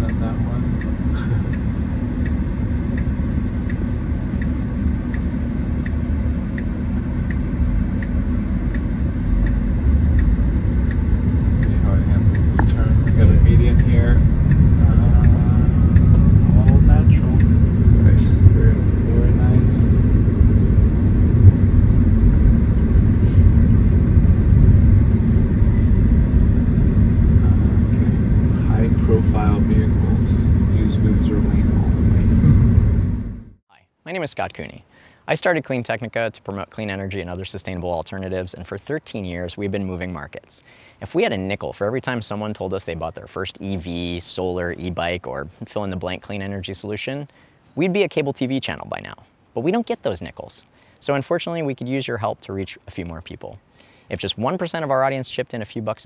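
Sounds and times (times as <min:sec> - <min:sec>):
turn signal ticking: 0:00.0 - 0:33.4
low steady rumble: 0:00.0 - 0:56.0.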